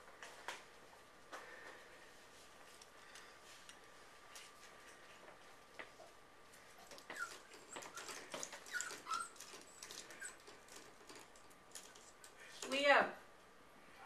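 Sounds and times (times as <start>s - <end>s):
puppy whimpering: 6.8s - 10.5s.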